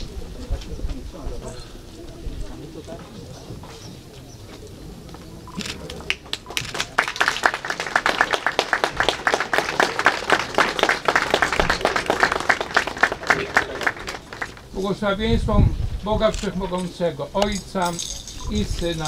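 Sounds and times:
crowd applauding: 5.6 - 14.7.

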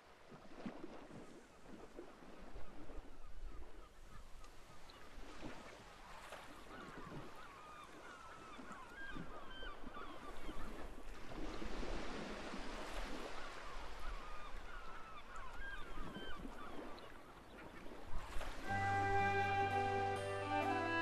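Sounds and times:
rushing surf or wind: 18.4 - 21.0.

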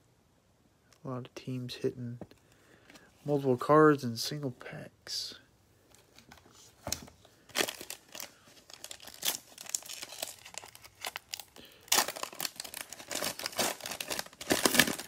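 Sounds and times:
cellophane crinkling and tearing: 7.5 - 15.0.

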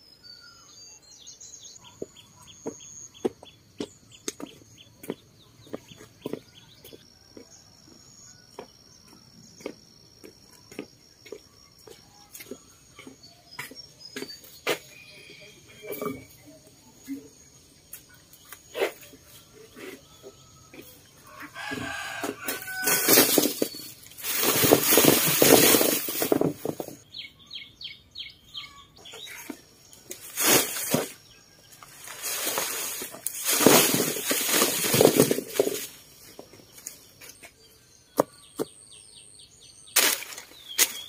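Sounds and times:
bird chirps: 0.0 - 7.3, 8.1 - 21.4, 27.0 - 30.3, 36.2 - 41.0
rooster crowing: 20.4 - 23.4.

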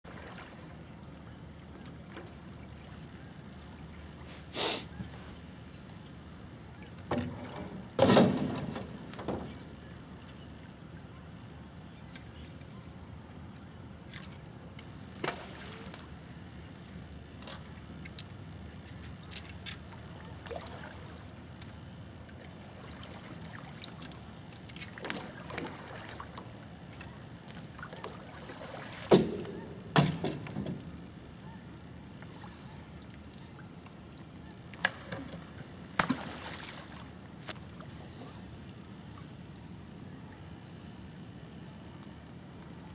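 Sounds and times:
water splashes: 0.0 - 1.0, 15.0 - 16.2, 19.9 - 21.5, 22.2 - 29.7, 32.3 - 39.2.

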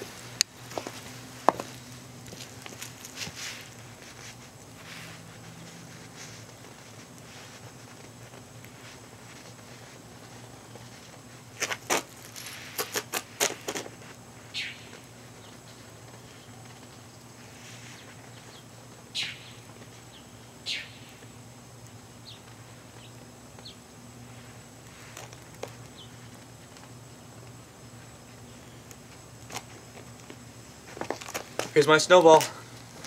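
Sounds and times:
hands packing wet snow: 0.0 - 14.2.

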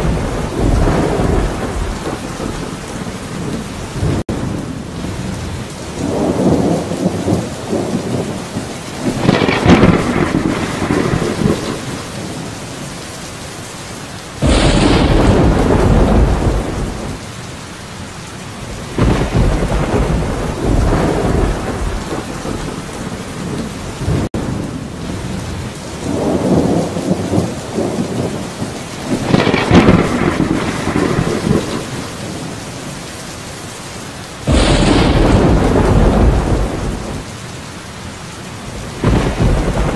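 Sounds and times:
thunder rumbling and clapping: 0.0 - 4.3, 6.0 - 12.2, 14.4 - 17.2, 18.9 - 24.4, 26.1 - 32.2, 34.4 - 37.3, 38.8 - 39.9
steady rain: 0.0 - 39.9.

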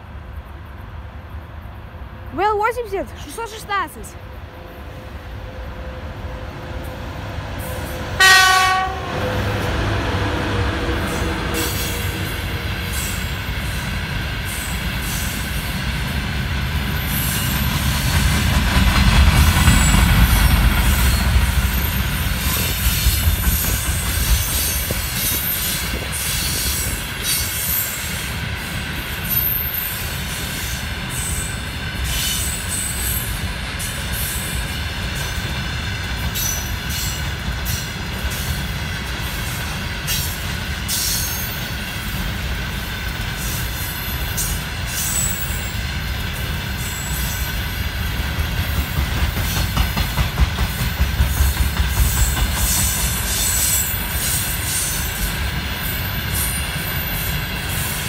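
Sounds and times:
train wheels rumbling on rails: 0.0 - 58.0
locomotive horn blast: 8.1 - 12.7
rail-joint clicks: 17.0 - 55.6.

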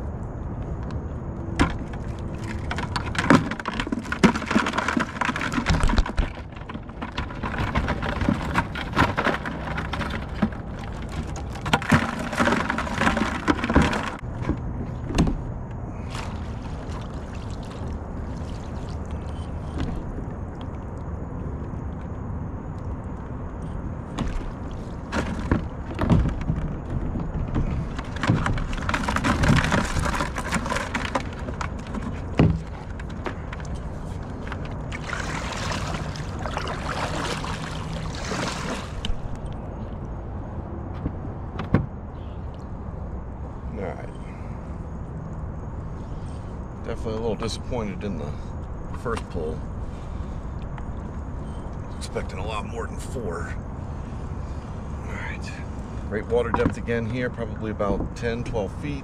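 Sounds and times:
low hum and rumble: 0.0 - 59.0
water splashing: 15.9 - 21.1, 27.4 - 39.6.

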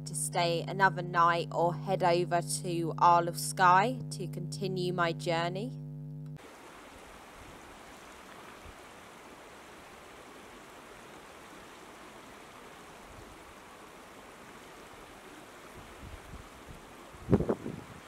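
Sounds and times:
stream running over stones: 6.4 - 16.7.

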